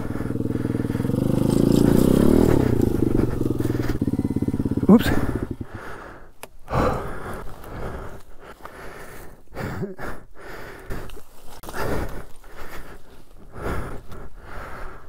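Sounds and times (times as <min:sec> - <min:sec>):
rising groan: 0:00.0 - 0:05.8
person breathing hard: 0:00.0 - 0:15.0.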